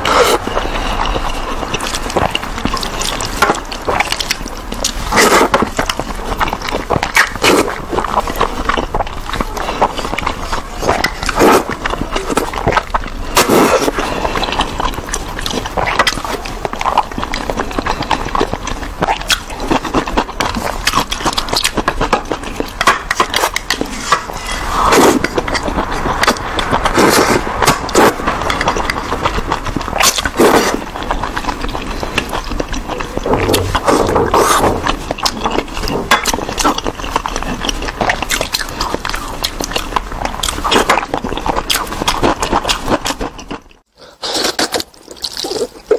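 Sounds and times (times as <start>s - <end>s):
chewing: 0.0s - 45.9s
wet slurping of noodles: 9.3s - 17.0s, 23.4s - 36.8s
wet mouth clicks: 32.1s - 35.6s.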